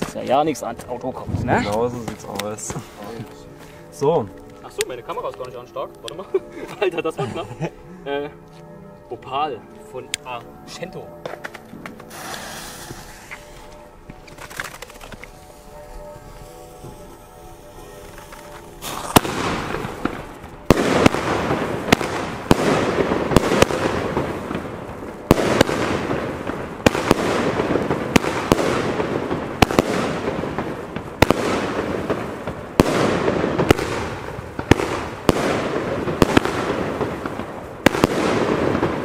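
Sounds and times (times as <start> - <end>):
firework shots banging: 11.2 - 15.2, 18.1 - 39.0.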